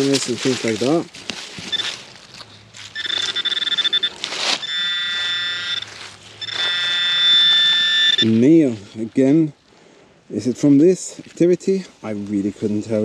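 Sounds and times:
soil scraping: 0:00.0 - 0:09.4
metal detector pinpointer beeping: 0:01.7 - 0:02.0, 0:02.9 - 0:08.4
steady buzzing tone: 0:02.9 - 0:08.4.

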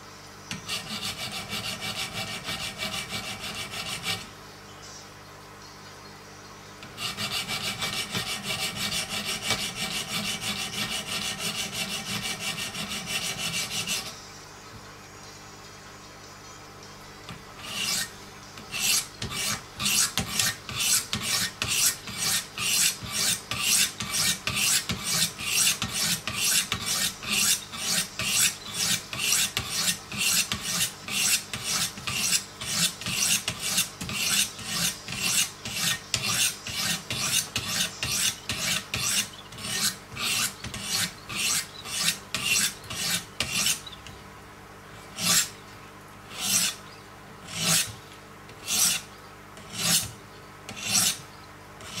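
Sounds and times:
sharpening stones rasping on blade: 0:06.9 - 0:14.1, 0:17.6 - 0:43.9, 0:45.1 - 0:45.5, 0:46.3 - 0:46.8, 0:47.5 - 0:47.9, 0:48.6 - 0:50.1, 0:50.7 - 0:51.2.

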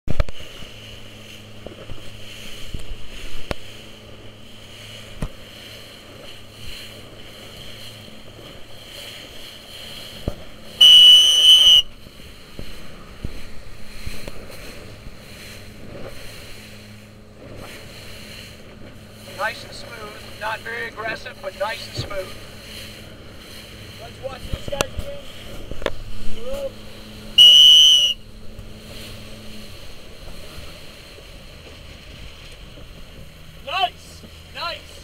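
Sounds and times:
wind: 0:00.0 - 0:35.0
water noise: 0:00.1 - 0:35.0
waves knocking against hull: 0:00.1 - 0:35.0
loud shrill tone: 0:10.8 - 0:11.9, 0:27.4 - 0:28.2.

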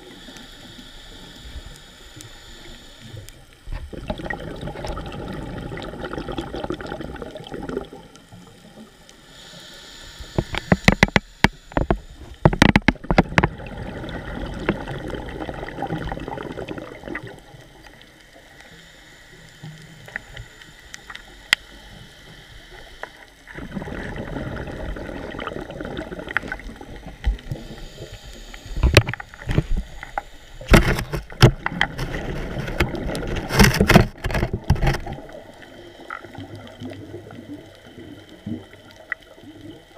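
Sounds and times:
regulator breathing hiss underwater: 0:00.0 - 0:03.9, 0:09.1 - 0:12.5, 0:13.4 - 0:34.6
exhaled bubbles crackling: 0:03.1 - 0:09.0, 0:10.4 - 0:18.7, 0:22.8 - 0:39.9.

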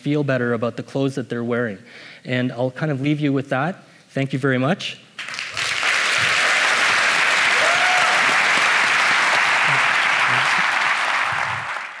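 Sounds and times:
audience applauding: 0:05.2 - 0:12.0
crowd whooping and calling: 0:06.2 - 0:12.0.

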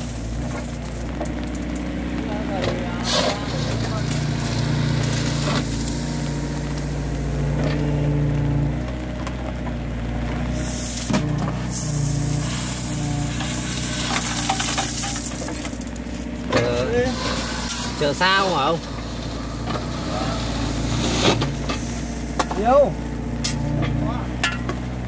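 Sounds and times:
diesel engine running: 0:00.0 - 0:25.0
stone pouring into truck bed: 0:10.5 - 0:22.7.

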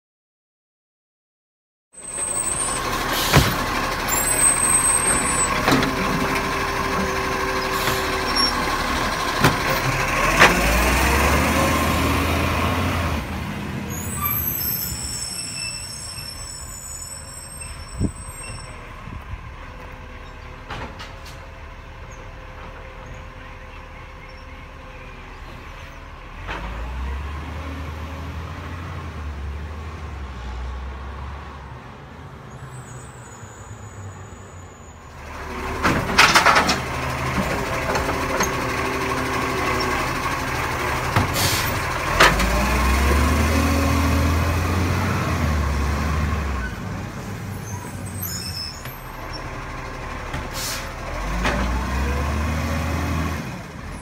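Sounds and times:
garbage truck diesel engine revving: 0:02.0 - 0:15.4, 0:25.2 - 0:31.0, 0:35.2 - 0:54.0
hydraulic hisses and knocks: 0:03.2 - 0:03.6.

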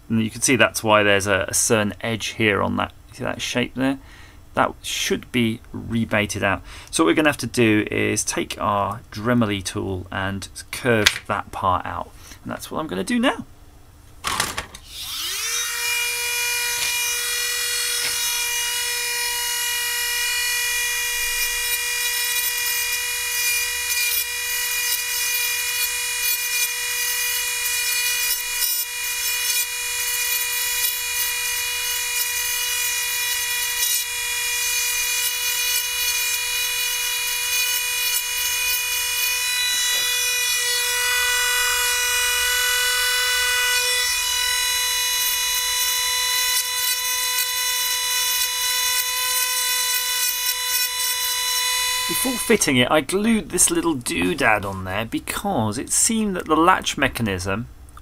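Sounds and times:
rotary tool high whine: 0:14.3 - 0:52.7.

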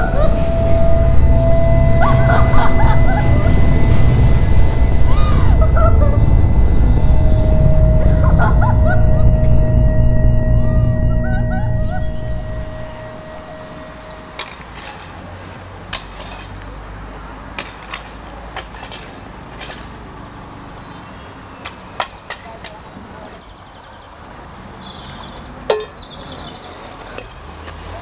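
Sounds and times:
high chirping: 0:00.0 - 0:14.4
steady low hum: 0:00.0 - 0:14.4.

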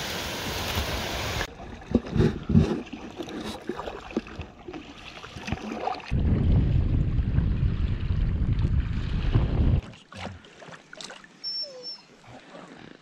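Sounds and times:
water lapping against raft: 0:01.4 - 0:06.2, 0:07.6 - 0:13.0
wind rumble on microphone: 0:06.1 - 0:09.9.

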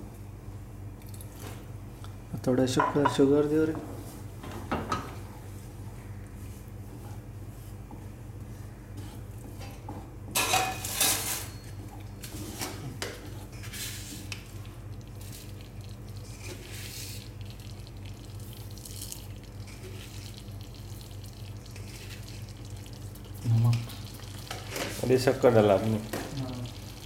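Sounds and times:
kitchen utensils clattering: 0:10.4 - 0:11.7.

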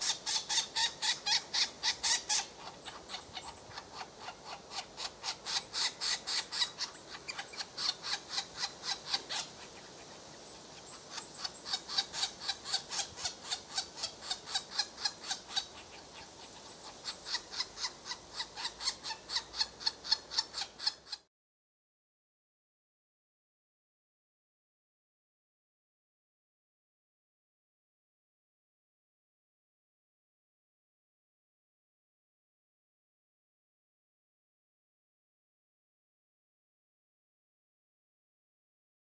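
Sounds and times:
woodpecker nestlings rasping calls: 0:00.0 - 0:21.2.

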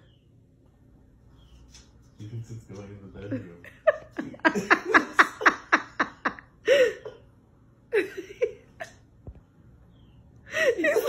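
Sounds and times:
person laughing: 0:03.4 - 0:07.3.

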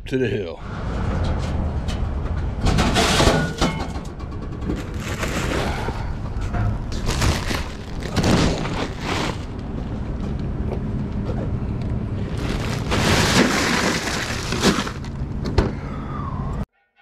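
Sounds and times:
steady low rumble: 0:04.0 - 0:16.7
ice rattling into cooler: 0:04.7 - 0:06.0, 0:06.9 - 0:09.5, 0:12.2 - 0:15.2
plastic bag rustling: 0:04.7 - 0:06.0, 0:06.9 - 0:09.8, 0:12.2 - 0:15.2.

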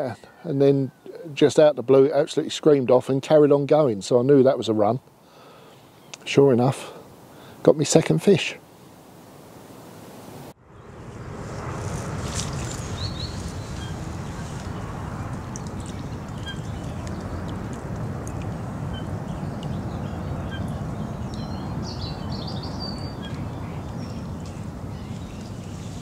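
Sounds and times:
outdoor background hiss: 0:00.0 - 0:26.0
birds chirping: 0:12.2 - 0:26.0.

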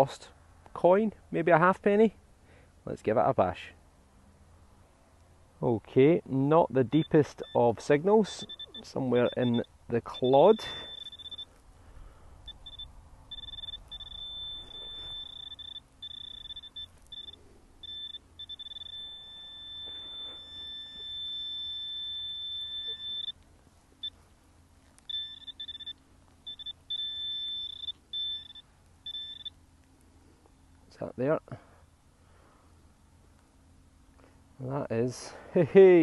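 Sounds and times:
metal detector beeping: 0:06.8 - 0:11.6, 0:12.5 - 0:23.4, 0:25.0 - 0:29.6.

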